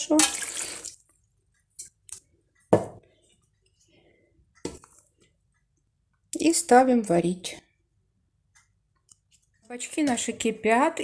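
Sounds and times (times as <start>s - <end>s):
kitchenware knocks: 2.7s - 3.0s.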